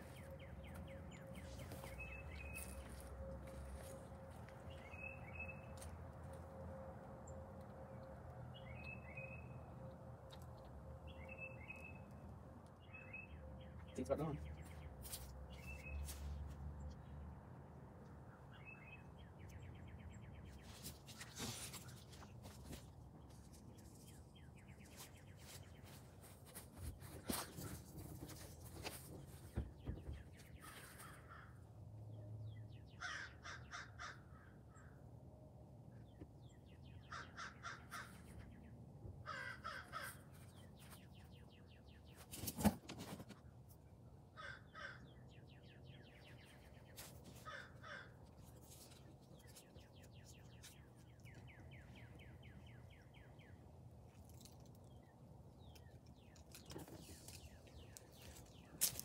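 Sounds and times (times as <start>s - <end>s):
crows cawing: 31.0s - 31.6s, 33.0s - 34.8s, 37.0s - 38.3s, 39.2s - 40.3s, 44.4s - 45.1s, 47.4s - 48.2s.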